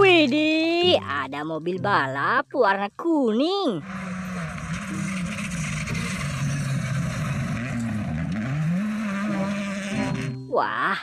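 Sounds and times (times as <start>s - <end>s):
rally car engine revving: 3.8s - 10.5s.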